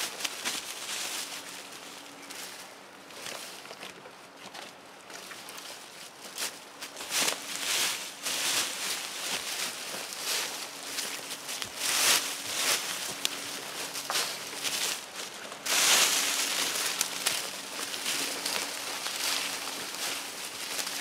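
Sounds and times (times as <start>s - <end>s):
branches rustling: 0.0s - 21.0s
footsteps crunching dry leaves: 0.0s - 21.0s.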